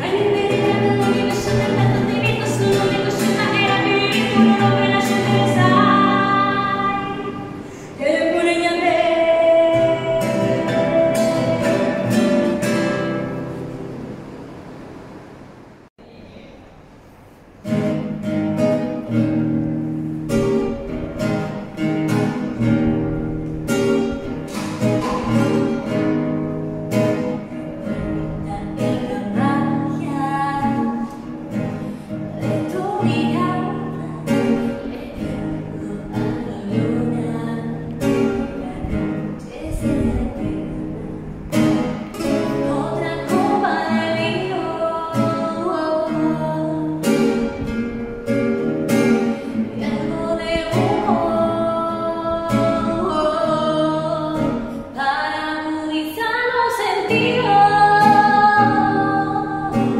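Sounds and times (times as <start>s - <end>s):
woman singing: 0.0s - 13.0s, 27.4s - 47.6s, 49.3s - 59.9s
strummed acoustic guitar: 0.0s - 15.5s, 17.6s - 59.9s.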